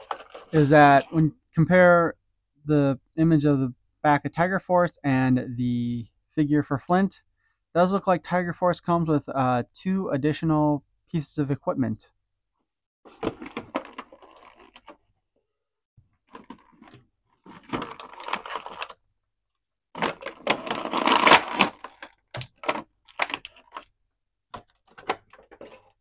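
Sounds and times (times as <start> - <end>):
packaging handling noise: 0.0 - 0.8, 13.1 - 15.0, 16.3 - 19.0, 20.0 - 23.9.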